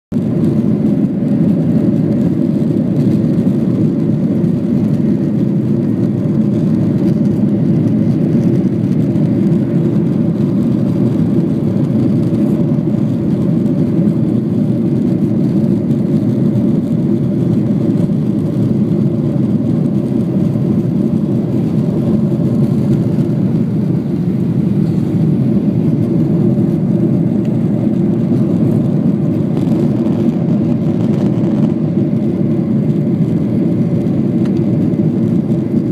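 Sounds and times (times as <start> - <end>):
jet engines roaring in cabin: 0.1 - 35.9.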